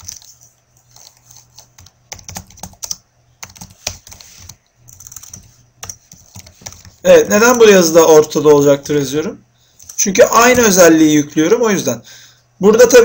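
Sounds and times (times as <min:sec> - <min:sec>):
computer keyboard typing: 0:00.0 - 0:07.0, 0:09.8 - 0:10.8.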